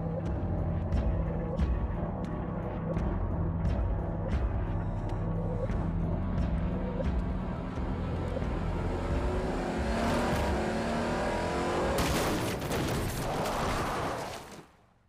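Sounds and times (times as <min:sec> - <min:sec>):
car engine revving hard: 0:08.2 - 0:12.0
tyres skidding on loose dirt: 0:12.0 - 0:14.7.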